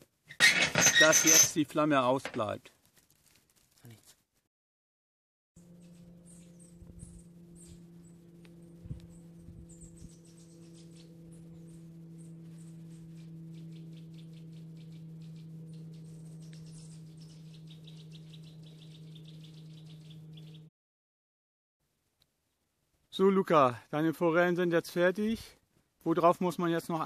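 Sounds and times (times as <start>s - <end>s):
steady low hum: 5.6s - 20.7s.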